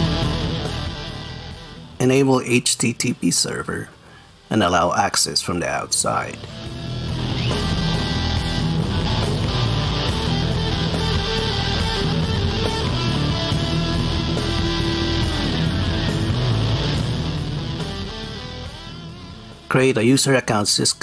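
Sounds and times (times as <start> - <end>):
blues-rock electric guitar music: 0.0 - 2.1, 6.4 - 20.0.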